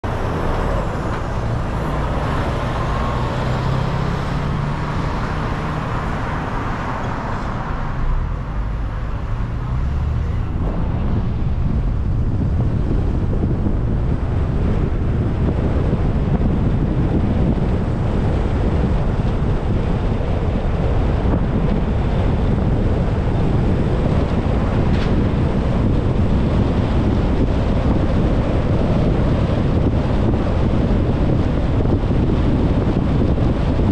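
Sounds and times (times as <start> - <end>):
car engine hum: 0.0 - 33.9
road and wind noise: 0.0 - 33.9.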